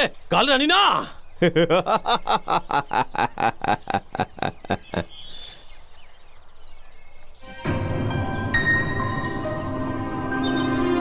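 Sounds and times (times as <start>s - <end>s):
faint bird chirps: 0.0s - 7.6s
man laughing: 1.0s - 5.3s.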